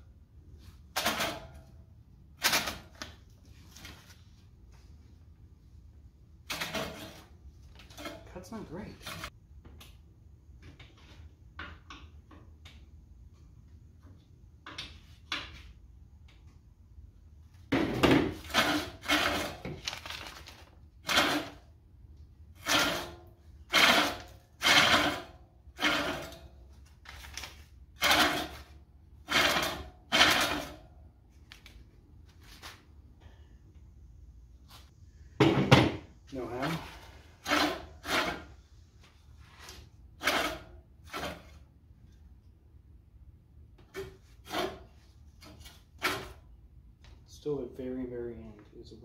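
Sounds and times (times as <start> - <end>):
reel mower blades scraping: 22.6 - 26.5, 28.0 - 30.8, 36.3 - 38.6, 39.4 - 41.6.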